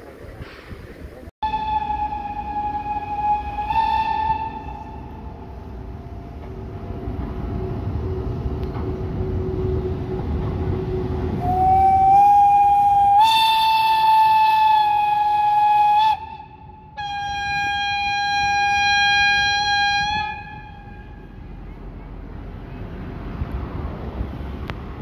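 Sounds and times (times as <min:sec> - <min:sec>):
locomotive rumbling past: 0:00.0 - 0:25.0
locomotive whistle blasts: 0:01.4 - 0:06.2, 0:10.8 - 0:21.4.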